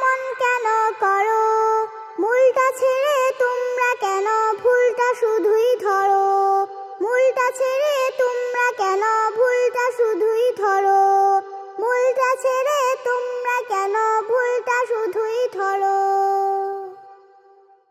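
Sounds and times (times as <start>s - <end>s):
girl singing: 0.0s - 17.6s.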